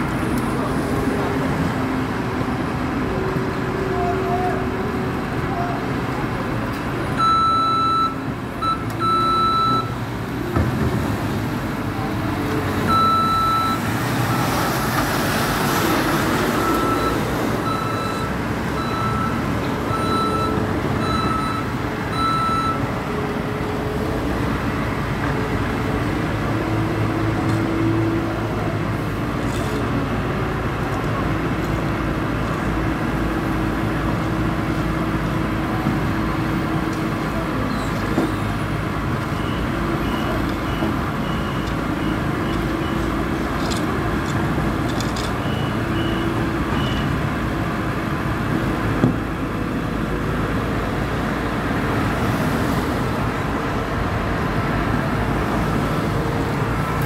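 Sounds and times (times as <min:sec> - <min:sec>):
loader engine running: 0:00.0 - 0:57.0
road traffic: 0:00.0 - 0:57.0
back-up alarm beeping: 0:07.2 - 0:10.0, 0:12.9 - 0:13.8
broad rushing noise: 0:47.8 - 0:57.0.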